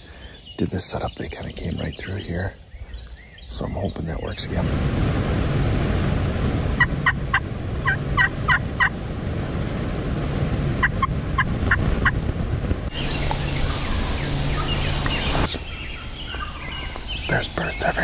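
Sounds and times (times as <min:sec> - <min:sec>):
turkeys gobbling: 0:06.8 - 0:09.0, 0:10.8 - 0:12.2
steady hiss: 0:12.9 - 0:15.7.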